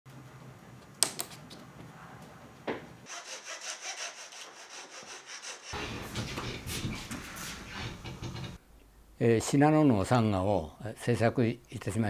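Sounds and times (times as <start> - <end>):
hand saw cutting wood: 3.1 - 6.8.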